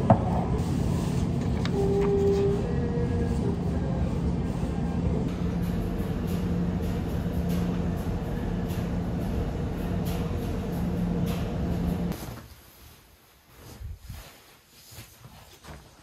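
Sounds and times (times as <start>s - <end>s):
moving vehicle rumble: 0.0s - 12.2s.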